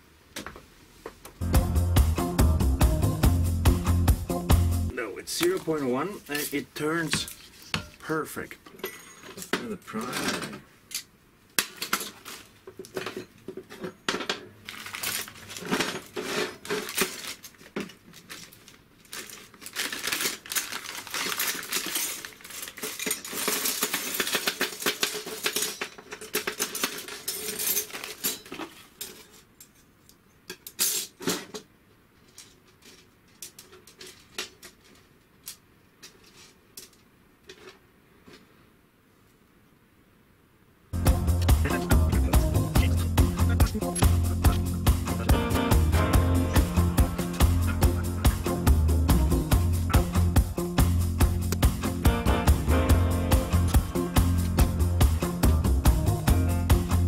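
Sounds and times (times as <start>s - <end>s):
plastic bag crinkling: 14.6s - 29.0s
metal parts clinking on workbench: 21.2s - 29.9s.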